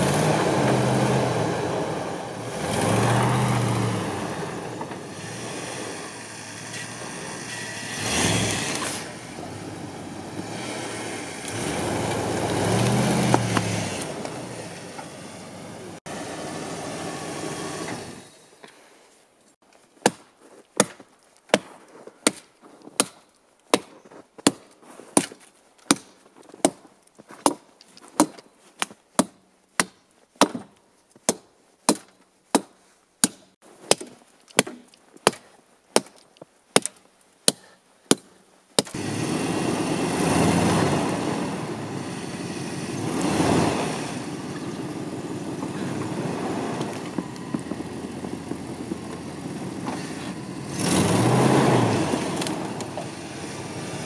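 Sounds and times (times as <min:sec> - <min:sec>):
truck engine running: 0:00.0 - 0:18.3, 0:39.0 - 0:54.0
axe chopping tree trunk: 0:20.0 - 0:26.8, 0:27.4 - 0:36.2, 0:36.8 - 0:39.0.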